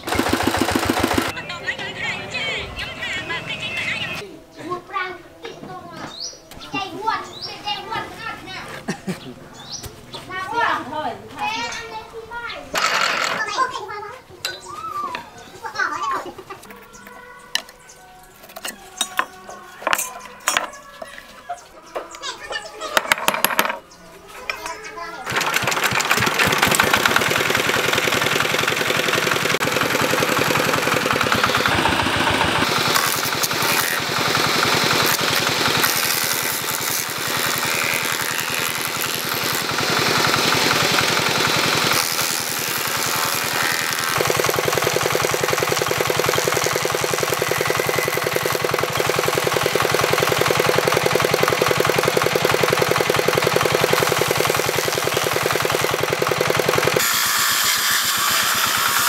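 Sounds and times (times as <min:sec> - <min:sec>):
saw blade cutting log: 0:00.0 - 0:01.3, 0:12.8 - 0:13.6, 0:25.3 - 0:59.0
diesel engine running steadily: 0:26.0 - 0:35.8, 0:44.2 - 0:57.0.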